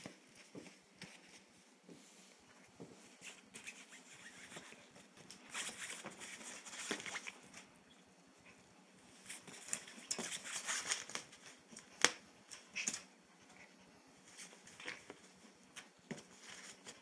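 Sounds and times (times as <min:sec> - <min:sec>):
rustling and scratching on fabric: 0:00.0 - 0:07.7, 0:08.4 - 0:12.0.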